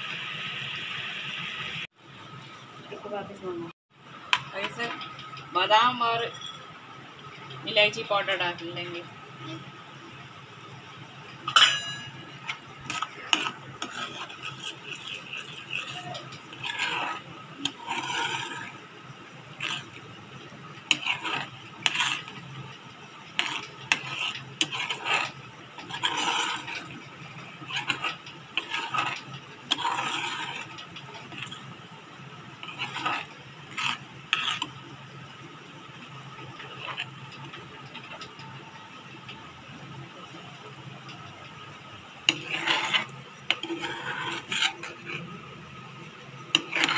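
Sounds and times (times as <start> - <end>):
ladle scraping a metal pan: 11.5 - 18.8, 19.5 - 22.7, 23.3 - 31.8, 32.6 - 34.8, 36.6 - 37.2, 42.3 - 45.3, 46.5 - 46.9.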